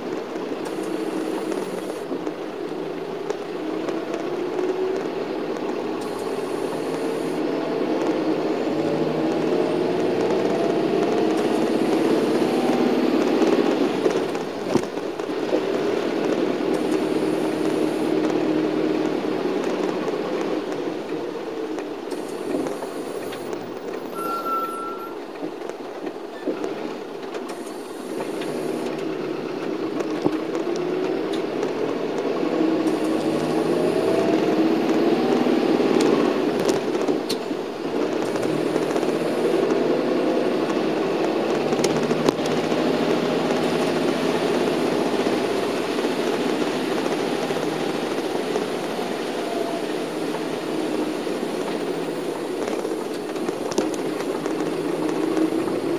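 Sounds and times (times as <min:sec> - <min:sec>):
bus engine: 0:00.0 - 0:55.9
road noise: 0:00.0 - 0:55.9
short high beep: 0:24.1 - 0:25.3.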